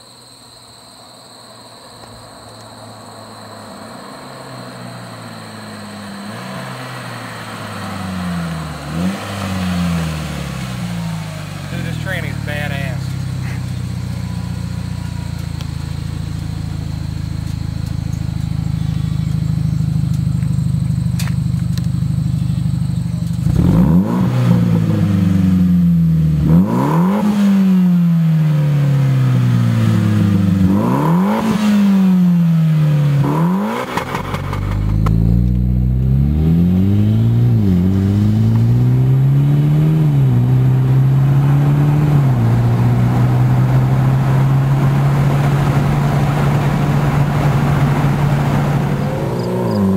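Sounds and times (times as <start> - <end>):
car engine revving: 2.0 - 49.9.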